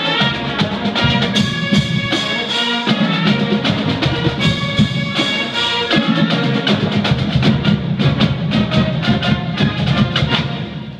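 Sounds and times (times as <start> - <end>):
band playing held notes: 0.0 - 10.9
sharp drum hits: 1.0 - 2.8.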